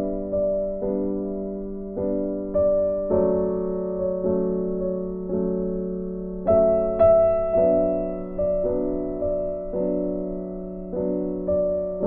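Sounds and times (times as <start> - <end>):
soft piano music: 0.0 - 12.0.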